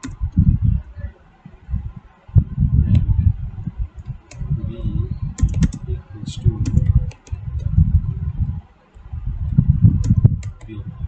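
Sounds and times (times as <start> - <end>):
keyboard typing: 0.0 - 0.3, 5.3 - 5.9, 6.6 - 7.8, 10.0 - 10.8.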